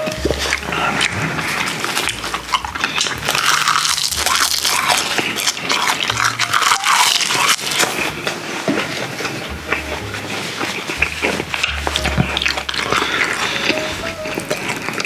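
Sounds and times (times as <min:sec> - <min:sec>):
wet mouth clicks and squelches: 0:00.0 - 0:08.4, 0:10.6 - 0:15.0
close chewing of food: 0:00.0 - 0:15.0.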